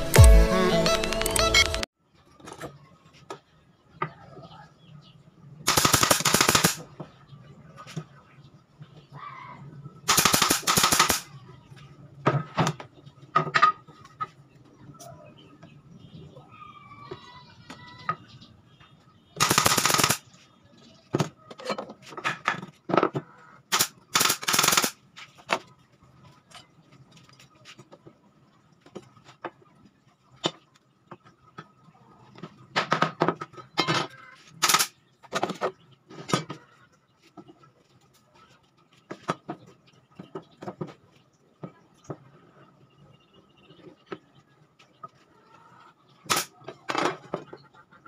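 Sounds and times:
nail gun firing into wood: 0:05.7 - 0:06.8, 0:10.1 - 0:11.2, 0:23.7 - 0:25.0, 0:34.6 - 0:34.9.

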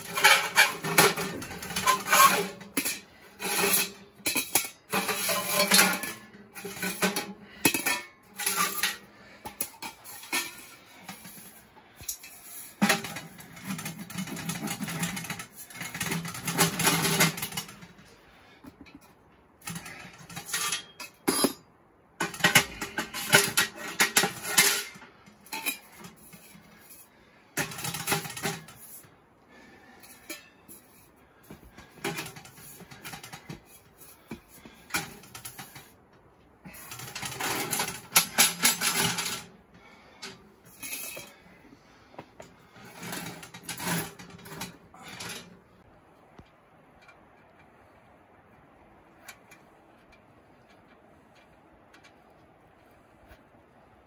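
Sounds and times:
camping gear clattering: 0:00.0 - 0:54.0.

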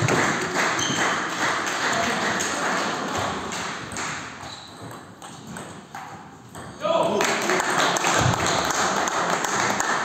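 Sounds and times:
shoe squeaks on floor: 0:00.8 - 0:01.1, 0:04.4 - 0:05.1.

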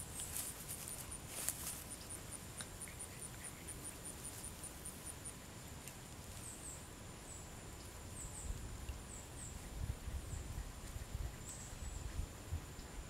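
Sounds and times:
faint ticks: 0:00.1 - 0:04.5.

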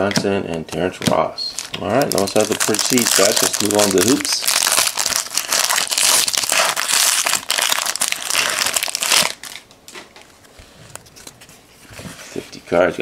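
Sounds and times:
foil wrapper crinkling: 0:01.5 - 0:09.6.

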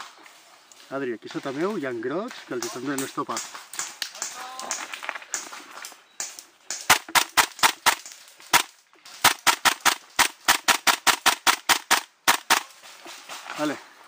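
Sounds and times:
airsoft gun shots: 0:06.8 - 0:12.7.

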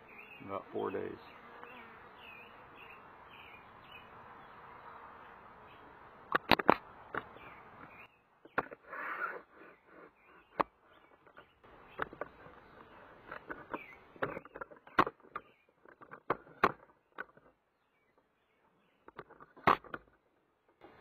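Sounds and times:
camera handling noise: 0:06.3 - 0:07.3
sharp clicks and knocks: 0:06.3 - 0:08.8, 0:10.5 - 0:17.6, 0:19.0 - 0:20.8.

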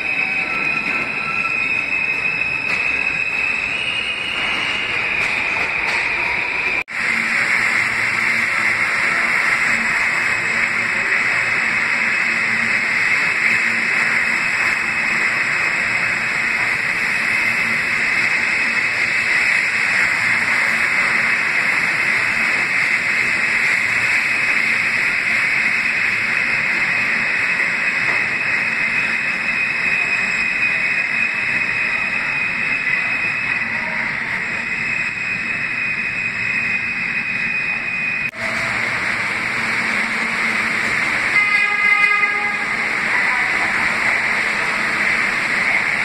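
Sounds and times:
subway train passing: 0:00.0 - 0:46.0.

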